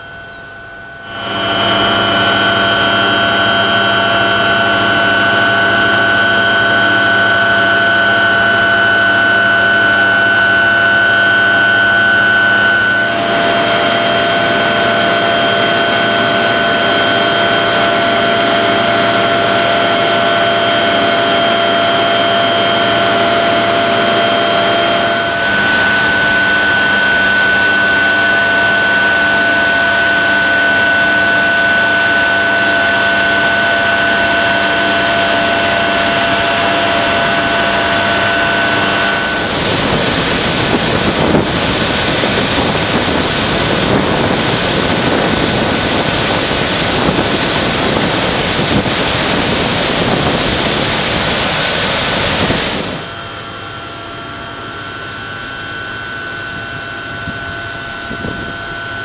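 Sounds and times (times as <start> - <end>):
high whine: 0.0 - 59.0
machinery humming: 0.0 - 59.0.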